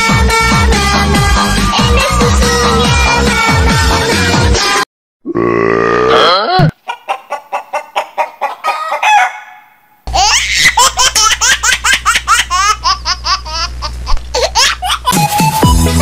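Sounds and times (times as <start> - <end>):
chicken clucking: 6.8 - 9.8
rapid laughter: 10.1 - 15.6.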